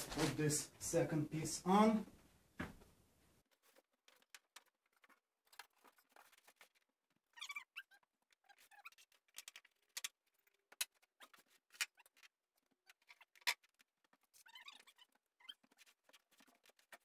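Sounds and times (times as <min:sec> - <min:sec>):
foam rubbing squeaks: 0:05.6 - 0:09.8, 0:10.4 - 0:17.0.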